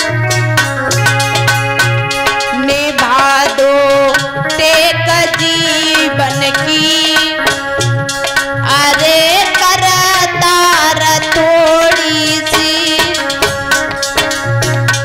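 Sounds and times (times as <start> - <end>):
hand drum beat: 0.0 - 15.0
held keyboard notes: 0.0 - 15.0
woman singing: 2.5 - 7.7, 8.6 - 13.4.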